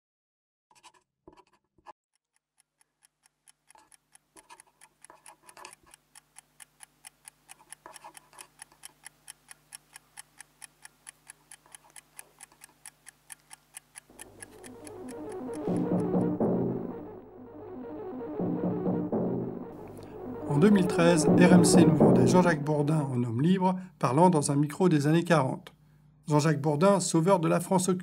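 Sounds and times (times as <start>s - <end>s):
mechanical timer ticking: 2.1s - 17.2s.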